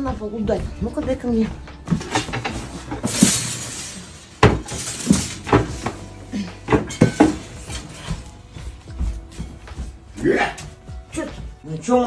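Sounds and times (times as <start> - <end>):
small knocks and clatters: 0.0 - 9.9
shattering crash: 3.0 - 5.9.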